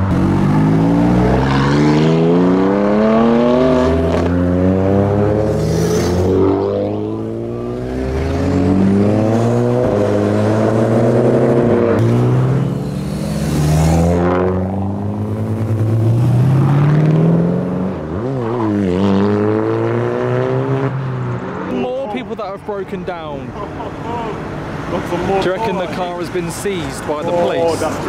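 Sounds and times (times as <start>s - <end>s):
car engine accelerating: 0.0s - 21.5s.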